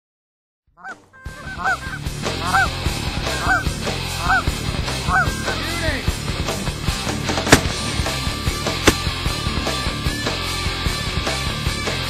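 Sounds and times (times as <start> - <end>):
geese honking: 0.8 - 6.0
music: 0.8 - 12.0.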